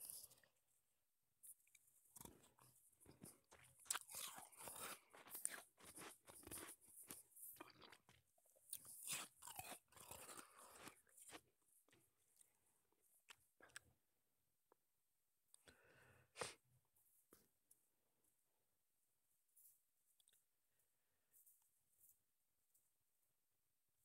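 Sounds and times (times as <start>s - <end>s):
crunching and chewing shaved ice: 1.6s - 12.0s.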